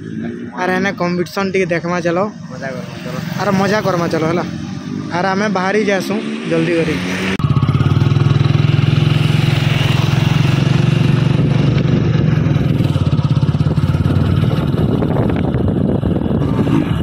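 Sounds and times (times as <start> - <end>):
motorcycle engine running: 7.4 - 17.0.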